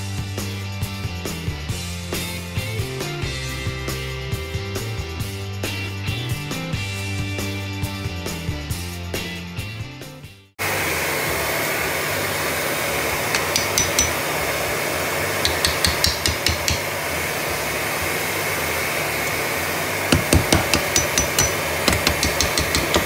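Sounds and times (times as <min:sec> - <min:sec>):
heat gun blower whir: 0:10.6 - 0:23.0
hammer tapping wooden shims: 0:13.4 - 0:14.2, 0:15.4 - 0:16.9, 0:20.1 - 0:23.0.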